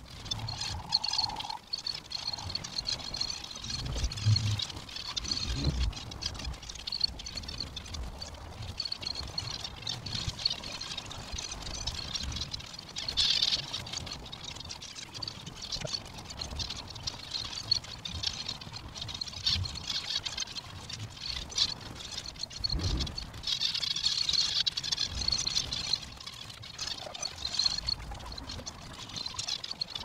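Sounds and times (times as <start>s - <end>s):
finches chattering: 0.3s - 3.2s.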